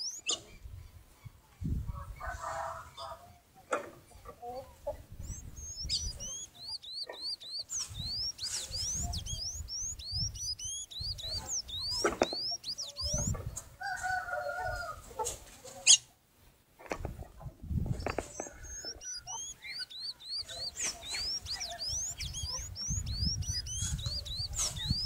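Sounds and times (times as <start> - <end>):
squeaky bird chirps: 0.0 - 0.5, 5.2 - 13.4, 17.9 - 25.0
wings fluttering: 5.2 - 13.4, 16.8 - 25.0.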